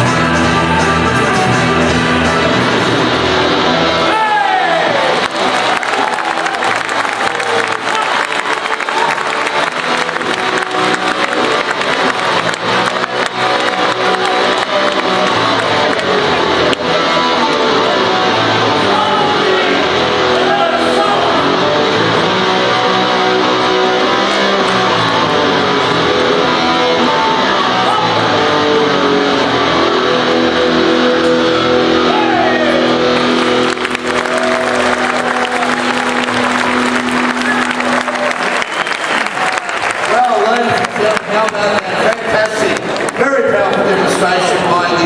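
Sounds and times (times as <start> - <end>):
plucked string dance music: 0.0 - 4.1, 6.7 - 32.1.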